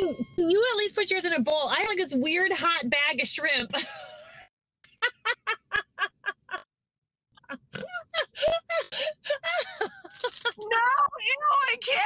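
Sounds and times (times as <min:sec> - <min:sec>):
woman laughing hard: 0:03.8 - 0:06.7, 0:07.5 - 0:10.6.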